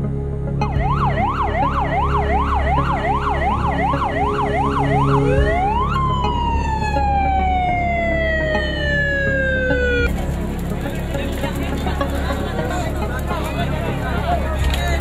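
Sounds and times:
emergency siren yelp and wail: 0.6s - 10.2s.

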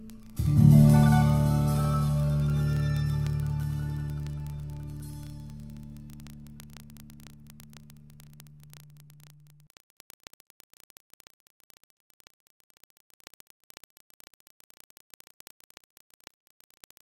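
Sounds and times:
low held music chord: 0.0s - 6.7s
faint crackling clicks: 0.0s - 17.0s.

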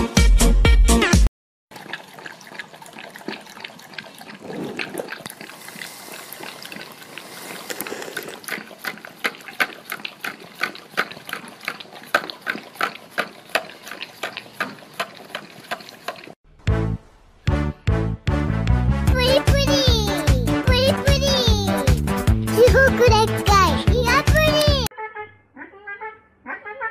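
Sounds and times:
dog licking wetly: 1.7s - 16.4s.

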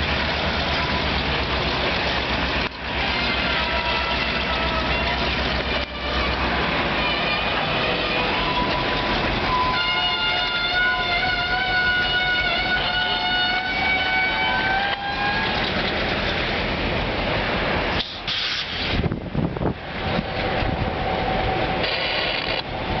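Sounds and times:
locomotive running: 0.0s - 23.0s
locomotive horn: 0.2s - 16.2s.

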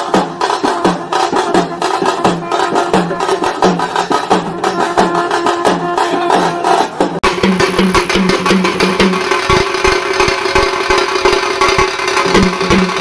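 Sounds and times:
fast busy drumming: 0.0s - 13.0s.

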